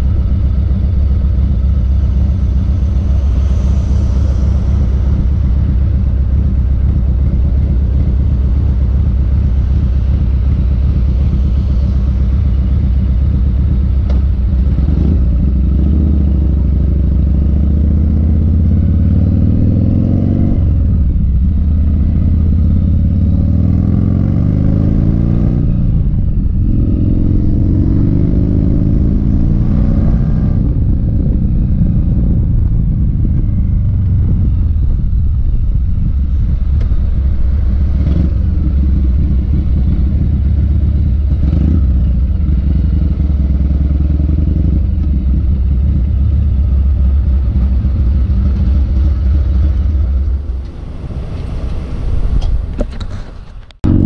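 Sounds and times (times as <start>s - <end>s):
motorcycle engine idling: 0.0s - 19.0s, 31.1s - 50.6s
motorcycle accelerating through gears: 0.0s - 52.8s, 53.8s - 54.0s.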